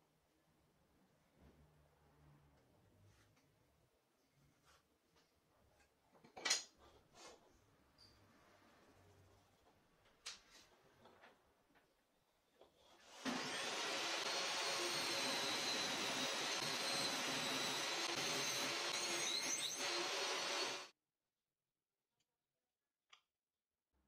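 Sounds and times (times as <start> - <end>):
table saw whining: 13.0 - 20.9.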